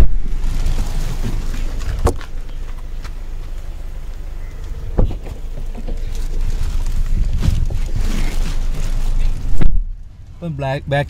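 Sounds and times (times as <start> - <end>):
wind noise on microphone: 0.0 - 2.5, 4.8 - 10.2
car door opening and shutting: 0.0 - 3.6, 4.2 - 6.4, 7.1 - 9.9
handling rumble: 0.0 - 11.0.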